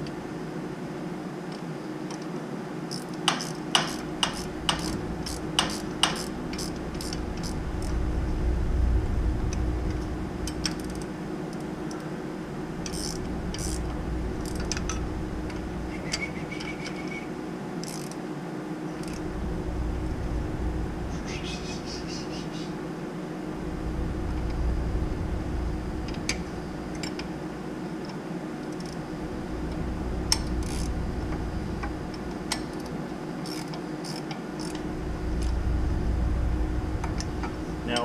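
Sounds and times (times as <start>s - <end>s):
steady low hum: 0.0s - 38.0s
metallic clicks of tools on bolts: 2.9s - 7.6s, 12.8s - 13.8s.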